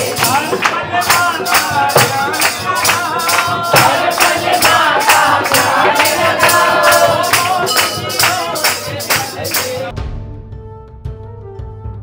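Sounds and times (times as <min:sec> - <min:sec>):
hand percussion beat: 0:00.0 - 0:09.9
person singing: 0:00.0 - 0:09.9.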